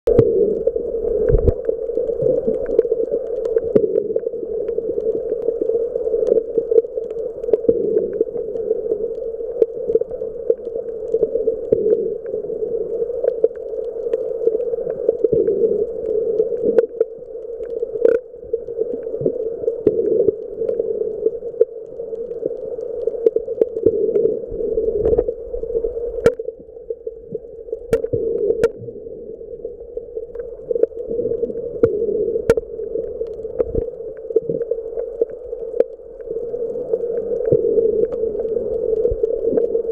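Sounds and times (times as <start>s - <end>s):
muffled underwater hum: 0.1s - 39.9s.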